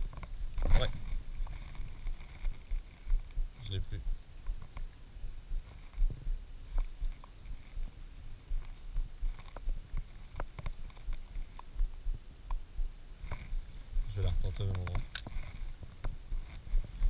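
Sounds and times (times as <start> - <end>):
wind rumbling: 0.0 - 17.0.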